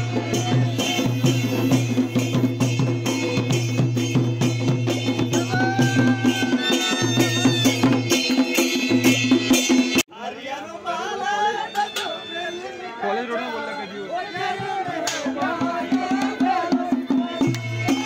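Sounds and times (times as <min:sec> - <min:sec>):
fast drumbeat: 0:00.0 - 0:10.0, 0:14.4 - 0:18.0.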